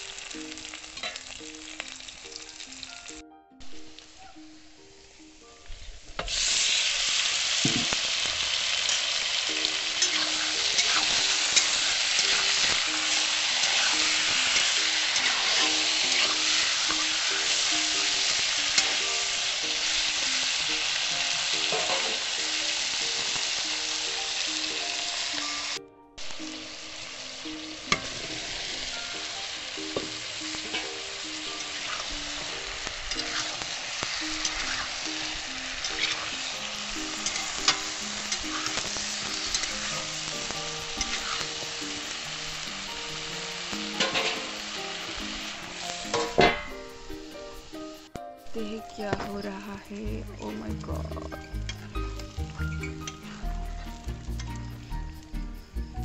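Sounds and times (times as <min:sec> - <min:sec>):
chicken sizzling in hot oil: 0:00.0 - 0:56.0
spatula stirring: 0:08.8 - 0:22.2, 0:30.0 - 0:41.8.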